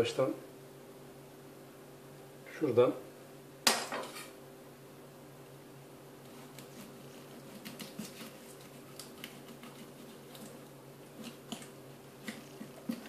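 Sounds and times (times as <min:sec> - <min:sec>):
low steady hum: 0:00.0 - 0:13.0
knife cutting through fish: 0:06.4 - 0:10.6, 0:11.2 - 0:13.0.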